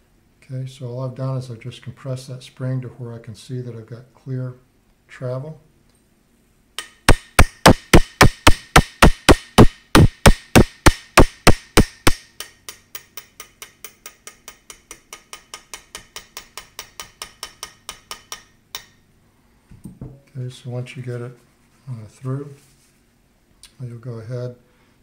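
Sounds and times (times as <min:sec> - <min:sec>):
hammer tapping metal pin: 0:06.8 - 0:19.0.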